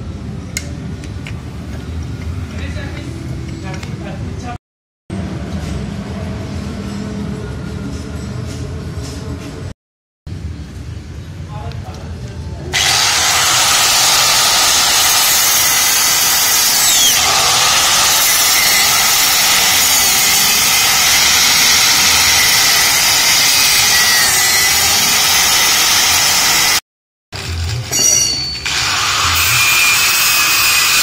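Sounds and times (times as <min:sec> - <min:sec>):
angle grinder cutting steel: 0:12.8 - 0:26.8, 0:27.4 - 0:31.0.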